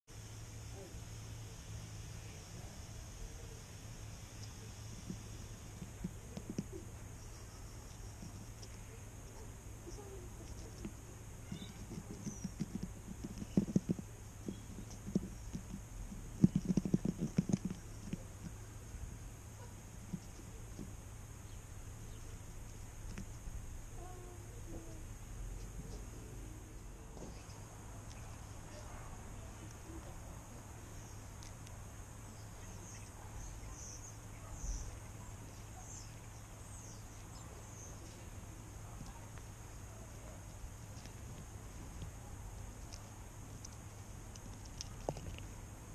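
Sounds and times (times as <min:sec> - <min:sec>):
low steady hum: 0:00.1 - 0:45.9
small animals chirping: 0:02.2 - 0:19.0
mouse bumps and scuffs: 0:04.4 - 0:09.0, 0:09.9 - 0:18.6.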